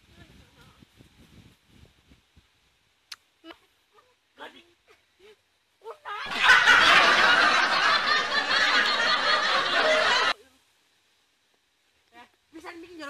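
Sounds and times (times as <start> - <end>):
laughter sound effect: 6.2 - 10.4.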